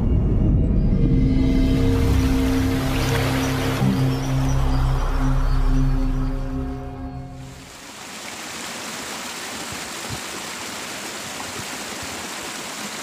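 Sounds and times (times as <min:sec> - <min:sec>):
intro music: 0:00.0 - 0:07.6
water rushing in ditch: 0:01.8 - 0:06.7, 0:07.4 - 0:13.0.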